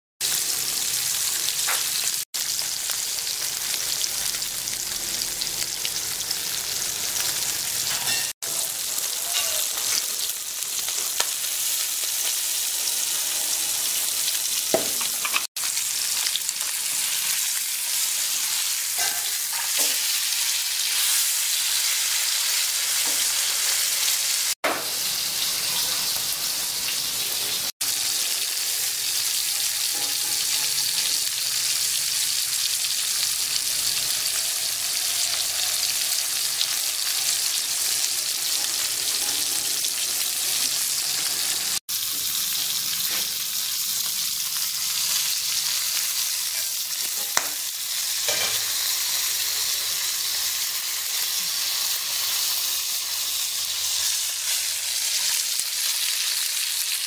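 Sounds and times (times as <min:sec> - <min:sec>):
fish sizzling in hot oil: 0:00.2 - 0:57.0.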